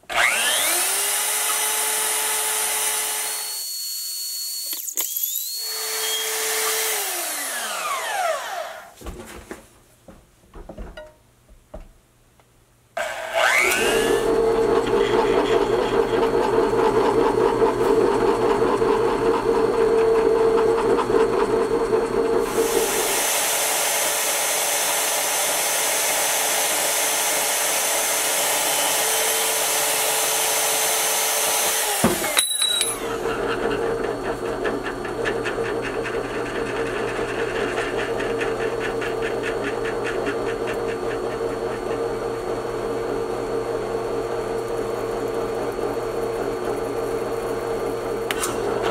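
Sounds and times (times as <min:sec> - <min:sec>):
band saw cutting metal: 0:00.0 - 0:09.0, 0:13.0 - 0:19.0, 0:22.4 - 0:42.2
drill press drilling metal: 0:00.1 - 0:08.6, 0:13.0 - 0:48.9.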